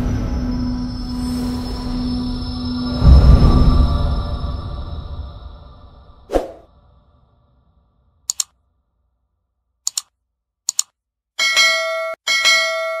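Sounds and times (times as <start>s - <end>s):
music: 0.0s - 6.3s
quick double clicks: 8.3s - 8.5s, 9.9s - 10.1s, 10.7s - 11.0s
bell chime: 11.4s - 13.0s.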